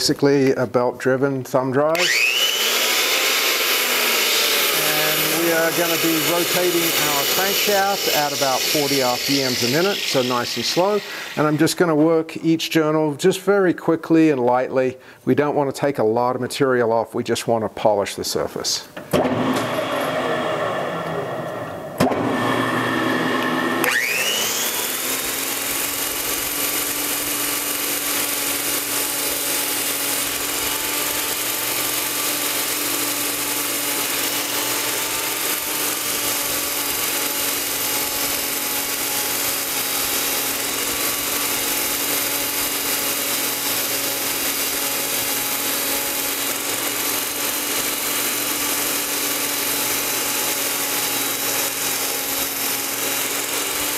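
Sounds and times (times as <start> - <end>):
polishing machine knocking: 1.9 - 11.6, 21.5 - 53.9
polishing machine humming: 1.9 - 11.8, 19.4 - 53.9
even hiss: 4.7 - 12.6.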